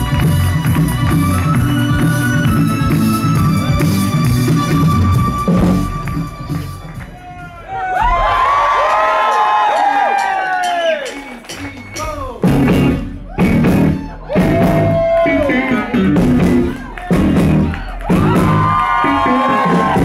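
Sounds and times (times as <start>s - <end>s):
rhythm and blues band playing: 0.0s - 7.6s, 10.2s - 20.0s
crowd whooping: 0.0s - 12.4s, 13.1s - 20.0s
electric guitar: 12.4s - 20.0s.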